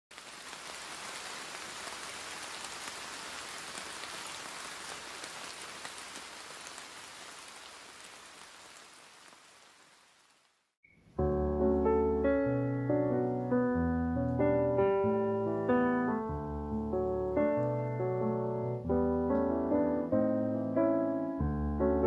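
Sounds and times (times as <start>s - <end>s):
steady rain falling: 0.1s - 10.8s, 15.4s - 20.7s.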